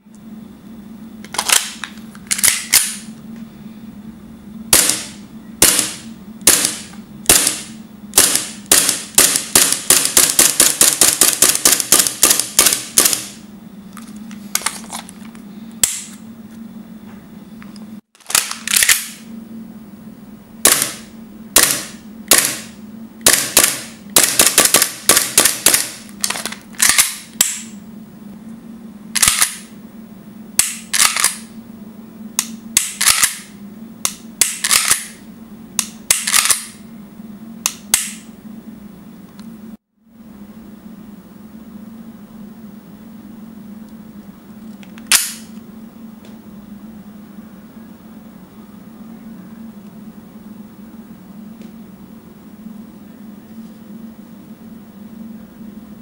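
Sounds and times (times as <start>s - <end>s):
faint low hum: 0.0s - 10.2s, 36.8s - 56.0s
airsoft pistol shots cracking: 4.8s - 11.1s, 20.7s - 21.0s, 21.6s - 22.7s.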